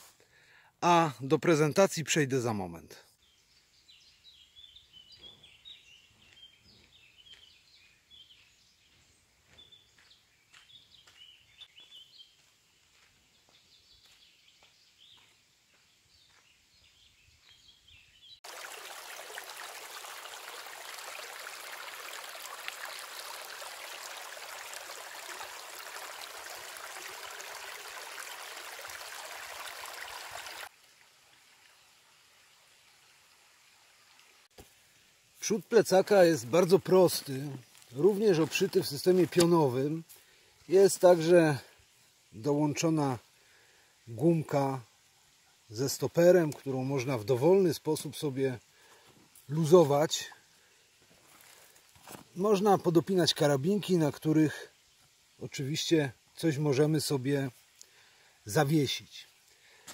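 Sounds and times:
birds chirping faintly: 0.2s - 30.7s, 33.6s - 59.9s
stream running over stones: 18.2s - 59.9s.

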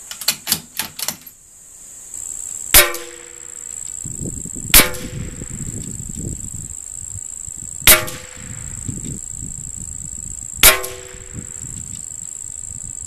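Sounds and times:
rifle shots: 2.8s - 3.4s, 7.9s - 8.5s, 10.6s - 11.4s.

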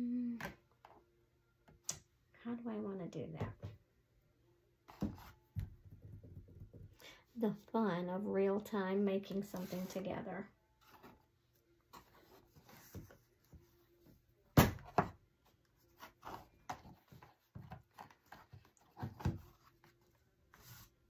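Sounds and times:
items rustling and scraping: 9.3s - 21.0s.

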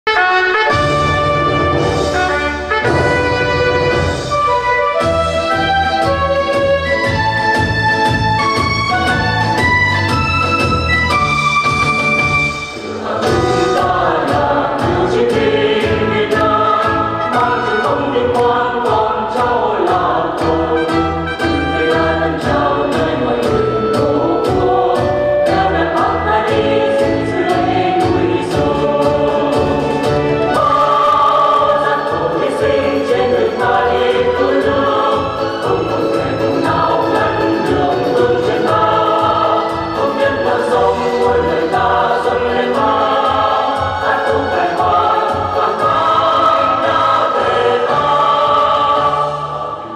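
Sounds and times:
group singing over steady beat: 12.7s - 49.9s.

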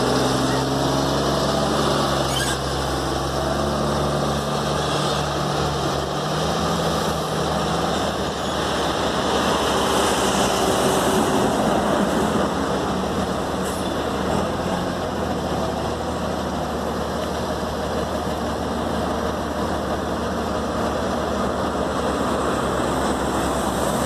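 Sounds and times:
diesel truck engine pulling away: 0.0s - 24.0s.

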